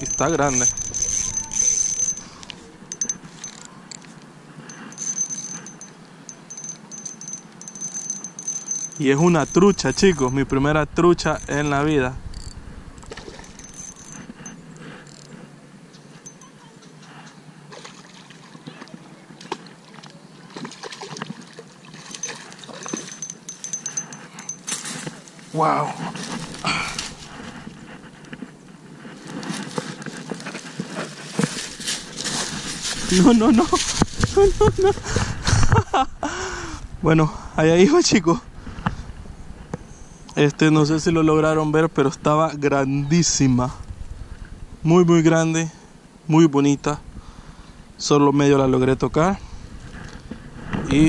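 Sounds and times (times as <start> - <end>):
high rapid chirping: 0.0 - 3.7
fishing reel whirring: 0.0 - 4.1, 4.7 - 10.5, 11.1 - 15.3
light metallic clicks and rattles: 11.2 - 15.3
fish splashing in shallow water: 17.7 - 23.2.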